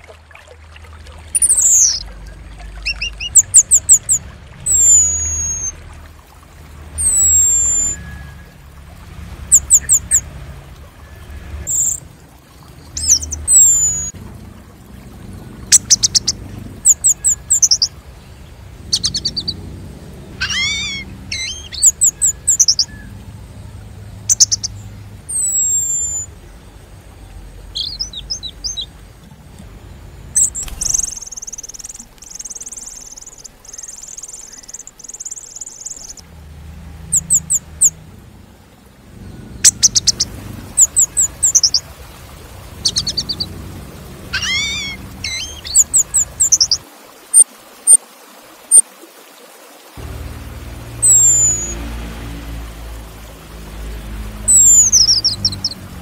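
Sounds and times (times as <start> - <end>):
thrush calling: 0.0 - 6.0, 7.0 - 8.6, 9.4 - 10.3, 12.9 - 14.2, 15.6 - 18.0, 18.8 - 23.2, 24.2 - 26.4, 27.7 - 29.0, 30.3 - 36.2, 37.0 - 38.0, 39.4 - 48.0, 50.8 - 52.0, 54.2 - 56.0.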